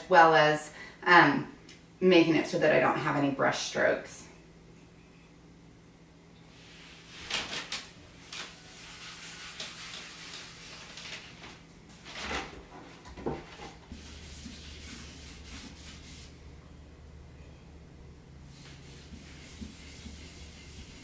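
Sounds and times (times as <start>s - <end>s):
cloth rag rubbing on wood: 8.3s - 11.2s, 13.5s - 16.4s, 18.5s - 21.0s
low hum: 16.3s - 21.0s.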